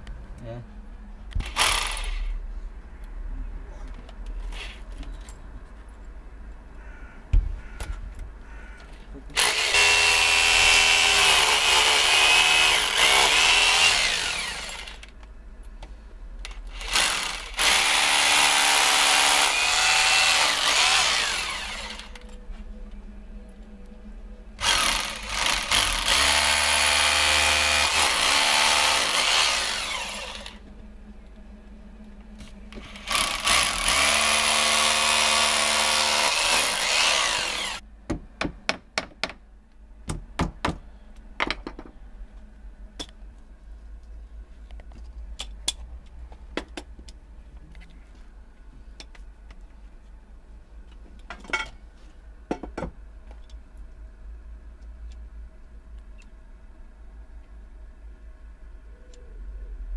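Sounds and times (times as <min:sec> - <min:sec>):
hammer drill boring into brick: 0:01.4 - 0:02.3, 0:09.4 - 0:15.1, 0:16.7 - 0:22.1, 0:24.6 - 0:30.6, 0:32.9 - 0:37.8.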